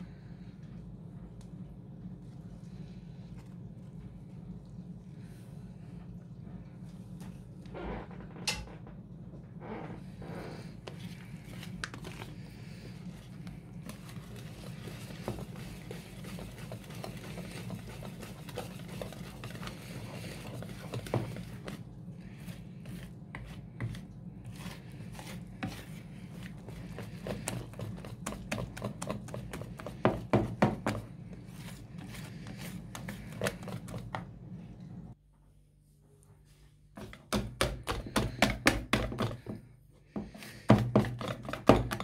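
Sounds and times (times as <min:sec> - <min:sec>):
whisk tapping bowl: 0:13.8 - 0:21.8, 0:22.9 - 0:34.2, 0:40.6 - 0:42.0.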